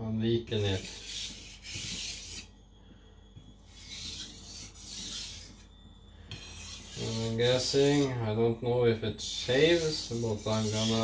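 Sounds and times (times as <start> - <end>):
knife scraping on whetstone: 0.6 - 2.5, 3.7 - 5.7, 6.3 - 8.1, 9.4 - 11.0.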